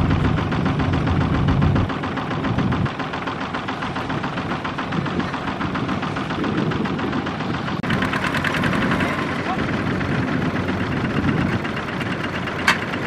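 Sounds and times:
diesel engine knocking: 0:00.0 - 0:13.0.

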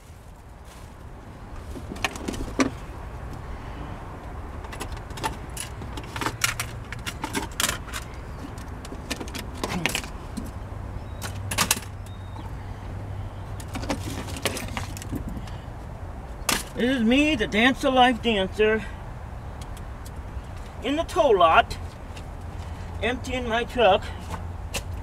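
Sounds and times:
loose objects clinking and rattling: 0:04.6 - 0:10.5, 0:13.6 - 0:15.4.

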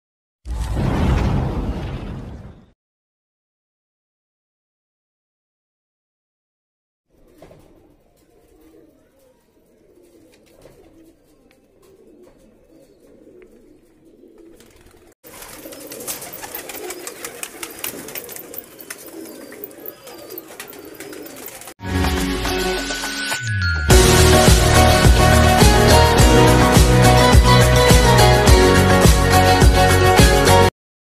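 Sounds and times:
pigeons cooing: 0:07.1 - 0:21.8
loud music: 0:21.8 - 0:30.7.

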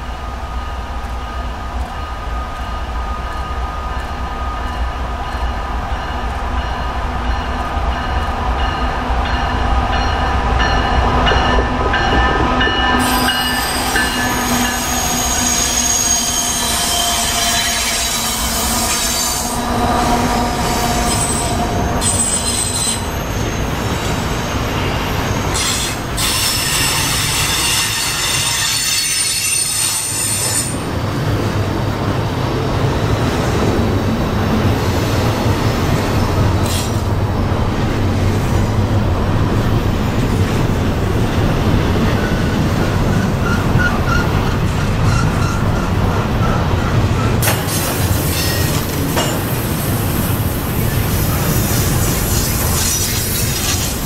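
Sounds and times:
diesel locomotive engines: 0:00.0 - 0:54.0
rumble of freight cars: 0:00.0 - 0:54.0
wheels squealing on rail: 0:12.0 - 0:30.8, 0:36.6 - 0:37.1, 0:41.9 - 0:54.0.

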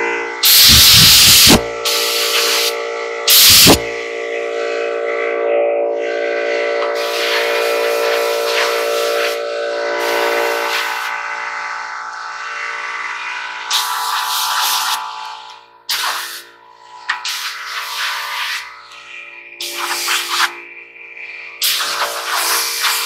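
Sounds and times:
steady hum: 0:00.0 - 0:23.0
compressed air blasting: 0:00.4 - 0:04.0, 0:06.9 - 0:16.5, 0:17.2 - 0:20.6, 0:21.3 - 0:23.0.

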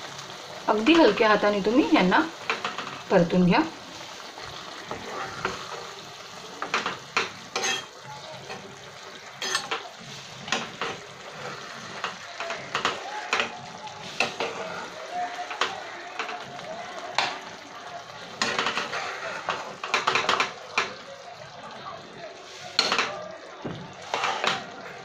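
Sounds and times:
gravy sizzling: 0:00.0 - 0:25.0
spatula scraping pan: 0:02.0 - 0:17.4, 0:18.4 - 0:20.9, 0:24.0 - 0:25.0.

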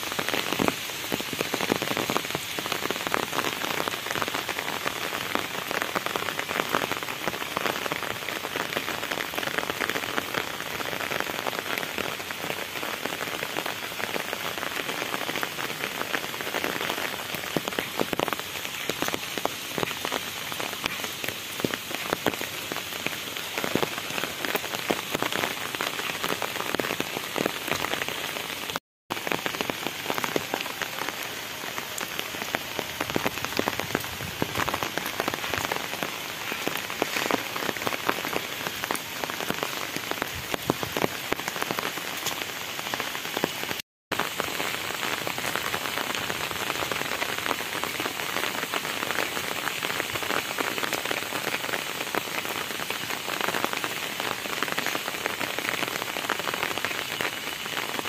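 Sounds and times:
rain hissing on wet road: 0:00.0 - 0:58.0
rain pattering on an umbrella: 0:00.0 - 0:58.0.

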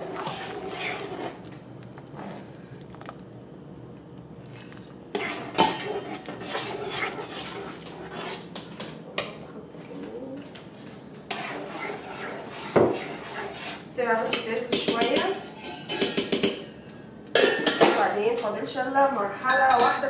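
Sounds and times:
spoon stirring soup in a pot: 0:00.0 - 0:03.3, 0:04.5 - 0:09.4, 0:11.3 - 0:16.7.

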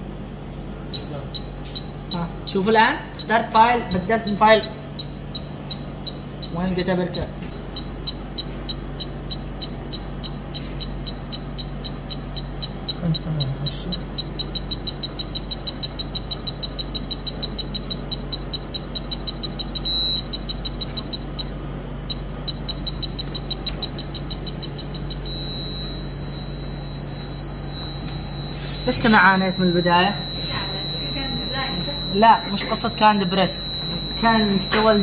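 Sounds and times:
continuous electronic tone: 0:00.9 - 0:35.0
high electronic beeping: 0:07.7 - 0:21.5, 0:22.1 - 0:35.0.

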